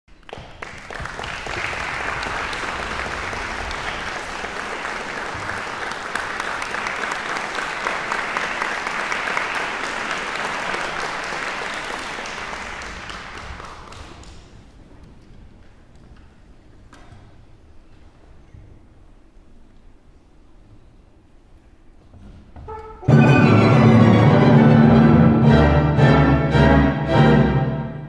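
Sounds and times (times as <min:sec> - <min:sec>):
audience applauding: 0:00.1 - 0:14.8.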